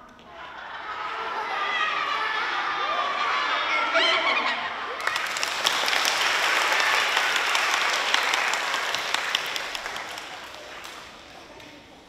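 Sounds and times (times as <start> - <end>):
children applauding: 4.8 - 12.0.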